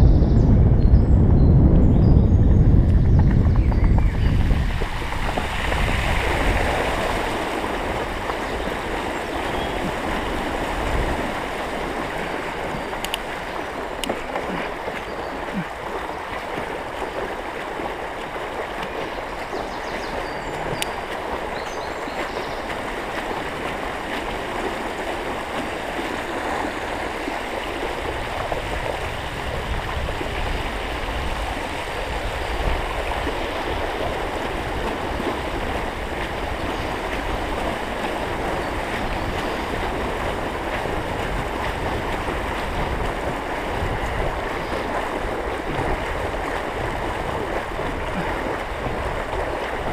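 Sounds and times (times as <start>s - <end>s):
low rumbles: 0.0s - 6.8s
floodwater splashing: 2.9s - 49.9s.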